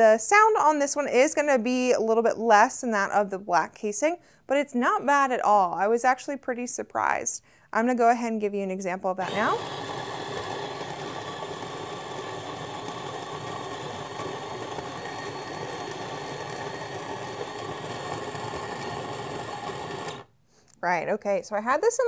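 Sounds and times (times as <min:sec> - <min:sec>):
coffee grinder running: 0:09.2 - 0:20.3.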